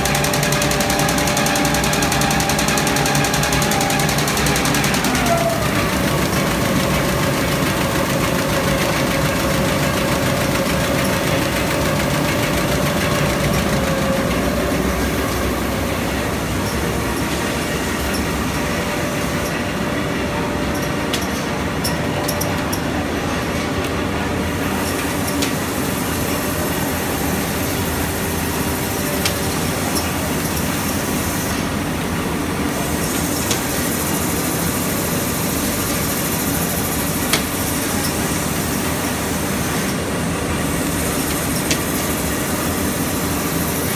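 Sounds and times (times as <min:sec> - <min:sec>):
sewing machine mechanical din: 0:00.0 - 0:18.7.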